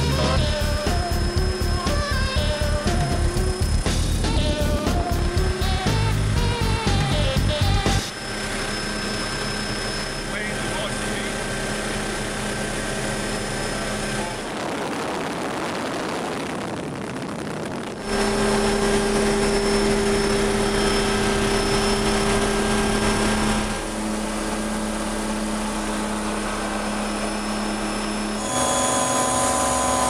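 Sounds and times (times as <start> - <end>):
helicopter turbine and rotor hum: 0.0 - 30.0
rush of wind in cabin: 12.0 - 27.1.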